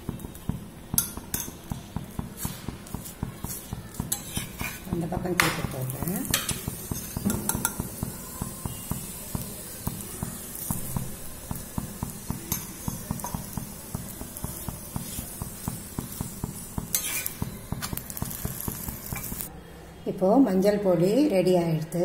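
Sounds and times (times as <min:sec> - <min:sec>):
metal spatula scraping griddle: 0:02.4 - 0:05.0, 0:05.7 - 0:09.1, 0:14.9 - 0:19.5.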